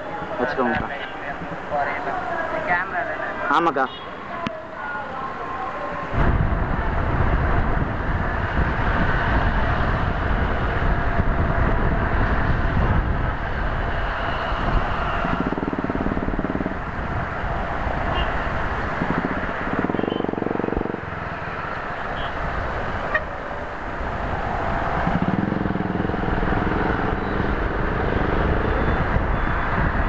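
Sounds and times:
wind on microphone: 6.0 - 30.0
motorcycle engine running: 14.7 - 21.3, 24.6 - 30.0.

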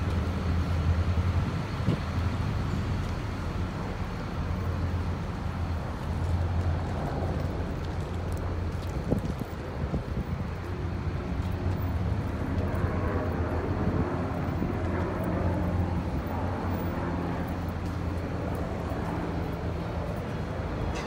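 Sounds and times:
rushing outdoor noise: 0.0 - 21.0.

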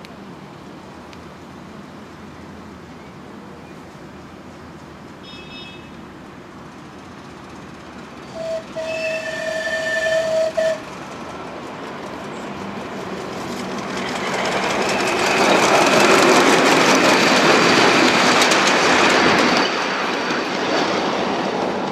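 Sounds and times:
train wheels clicking on rails: 6.2 - 21.9
locomotive whistle: 8.3 - 10.8.

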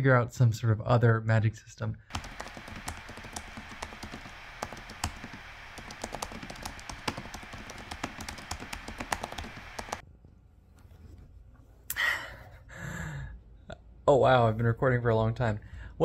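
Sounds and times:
faint steady hiss: 2.1 - 10.0
laptop keyboard typing: 2.1 - 10.0.

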